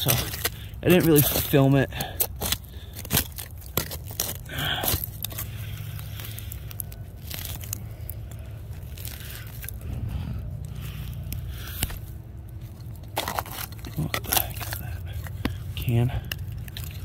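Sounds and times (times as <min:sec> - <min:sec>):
metal claw raking through soil: 0:00.0 - 0:17.0.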